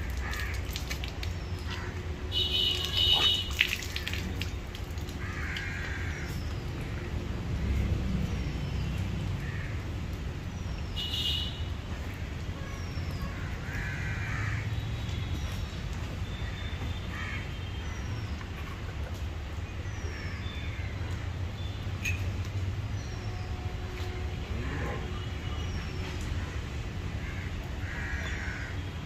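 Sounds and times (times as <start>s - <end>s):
crows cawing: 0.0s - 0.8s, 5.2s - 6.4s, 9.4s - 9.8s, 13.4s - 14.8s, 17.1s - 17.4s, 27.2s - 28.8s.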